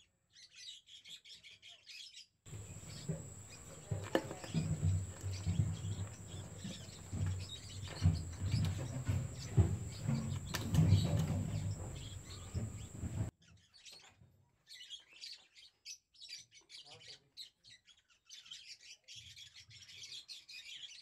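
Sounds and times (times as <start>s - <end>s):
lovebirds chirping: 0.4s - 13.3s.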